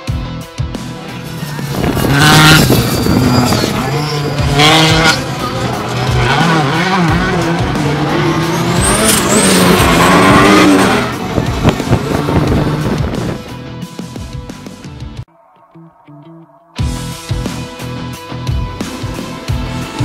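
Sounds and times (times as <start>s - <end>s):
racing buggy engines revving: 0.8s - 13.8s, 17.5s - 20.0s.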